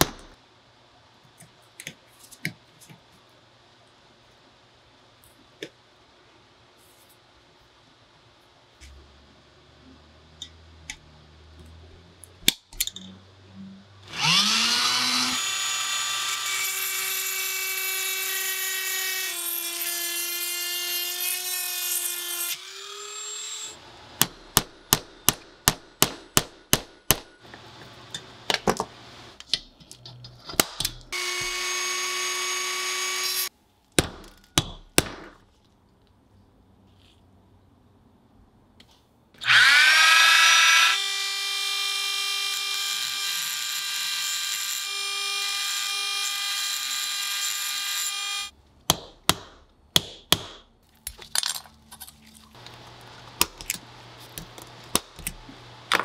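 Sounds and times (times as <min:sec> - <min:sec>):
power drill drilling into metal: 0:39.4 - 0:48.5.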